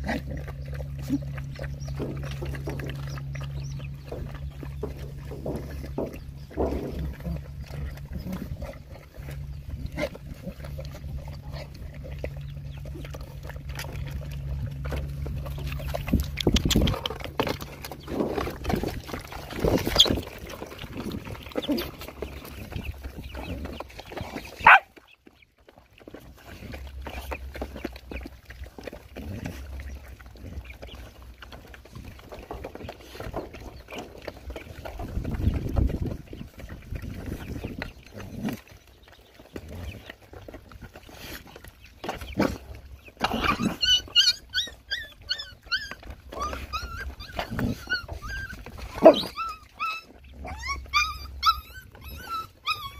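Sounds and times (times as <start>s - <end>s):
dogs eating and lapping: 0.0s - 52.9s
low steady hum: 0.0s - 52.9s
high-pitched dog squeal: 43.3s - 52.9s.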